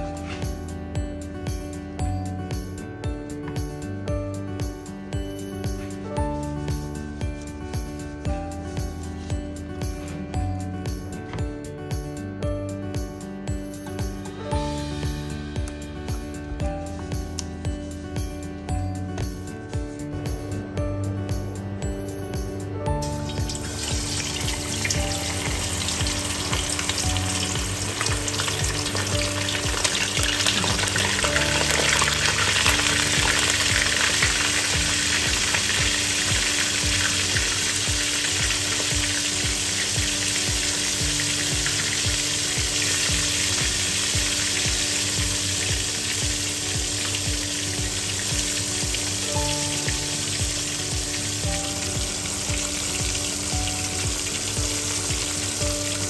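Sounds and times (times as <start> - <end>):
fish deep-frying in hot oil: 23.0 - 56.0.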